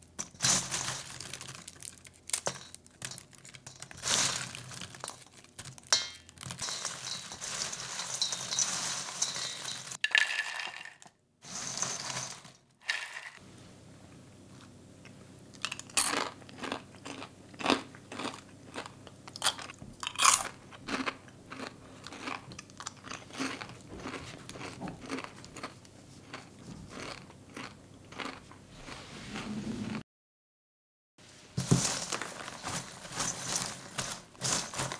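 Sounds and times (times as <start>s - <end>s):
sticky popcorn crackling in metal bowl: 0.0s - 13.3s, 31.6s - 34.9s
person crunching popcorn: 0.0s - 13.4s, 15.5s - 29.0s, 31.6s - 34.9s.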